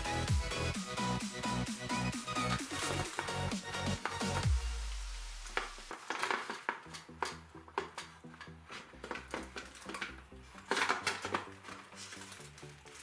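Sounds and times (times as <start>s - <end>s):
electronic music with steady beat: 0.0s - 6.0s
plastic casing clicks and knocks: 5.9s - 11.9s.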